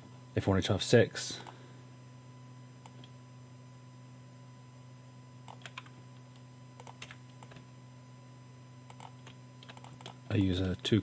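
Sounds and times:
low electrical hum: 0:00.0 - 0:11.0
keyboard and mouse clicking: 0:05.5 - 0:05.9, 0:06.8 - 0:07.6, 0:08.9 - 0:10.2.

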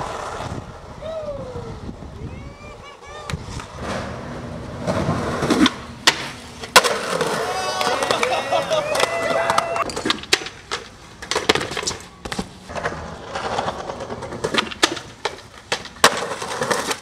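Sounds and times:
skateboard wheels rolling on concrete: 0:00.0 - 0:17.0
skateboard clacks and impacts: 0:03.6 - 0:08.3, 0:09.0 - 0:17.0.

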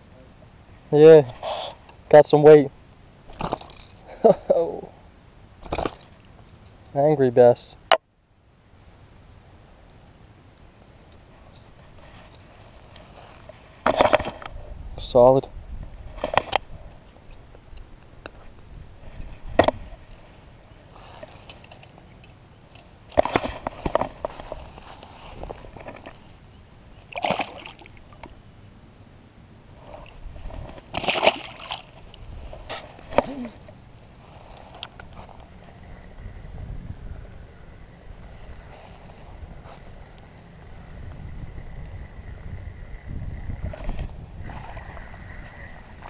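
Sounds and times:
metallic clinks and rattles: 0:00.0 - 0:00.5, 0:03.3 - 0:04.6, 0:05.6 - 0:07.0, 0:10.6 - 0:14.4, 0:16.2 - 0:17.7, 0:19.1 - 0:24.6
knocks and rustles: 0:05.6 - 0:07.0, 0:18.3 - 0:26.4
wind rumbling on microphone: 0:11.6 - 0:20.4, 0:29.7 - 0:31.0, 0:31.9 - 0:46.0
fishing reel clicks: 0:34.8 - 0:43.8.

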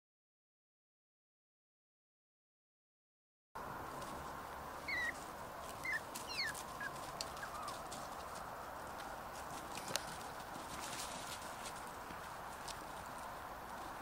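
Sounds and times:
puppies yipping: 0:04.8 - 0:08.1.

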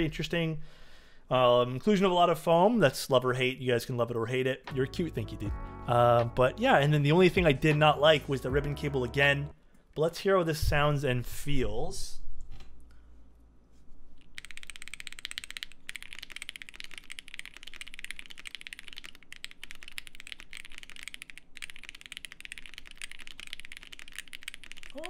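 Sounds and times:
mechanical keyboard typing: 0:14.2 - 0:25.0.

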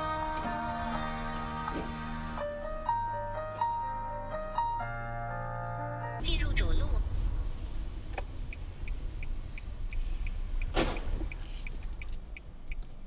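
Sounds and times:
steady ticking: 0:08.2 - 0:13.0
cars colliding crash: 0:10.7 - 0:11.4.

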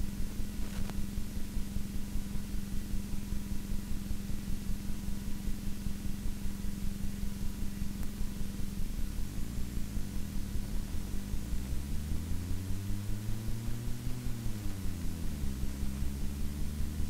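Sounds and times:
steady hiss with rapid pulsing: 0:00.0 - 0:17.0
vehicle engine driving: 0:08.0 - 0:17.0.

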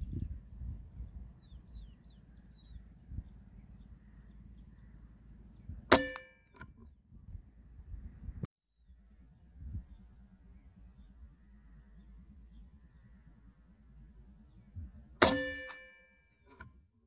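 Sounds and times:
low wind rumble: 0:00.0 - 0:05.9, 0:06.5 - 0:15.2
small birds chirping: 0:00.0 - 0:05.9, 0:06.7 - 0:15.2
air rifle shot: 0:15.2 - 0:15.8.

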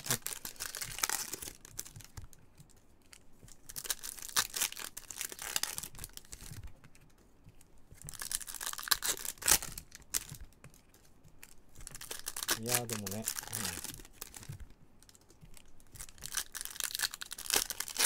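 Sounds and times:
foil wrapper crinkling and tearing: 0:00.0 - 0:02.1, 0:03.6 - 0:06.6, 0:08.1 - 0:10.4, 0:11.8 - 0:14.5, 0:15.1 - 0:18.0.

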